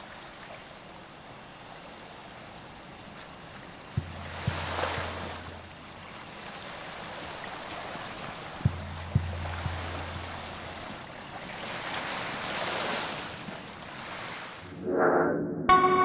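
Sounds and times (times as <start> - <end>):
high insect whine: 0.0 - 14.7
water washing: 3.8 - 14.6
low steady hum: 4.0 - 6.0, 8.6 - 11.0
dull thumps: 4.0 - 6.3, 8.6 - 11.3.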